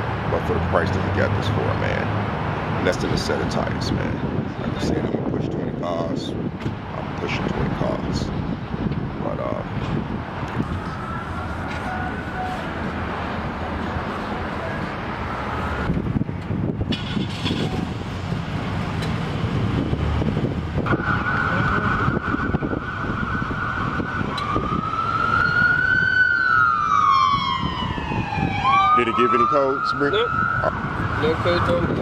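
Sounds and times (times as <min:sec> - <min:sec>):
siren wailing: 0:10.6 - 0:12.9, 0:20.8 - 0:32.0.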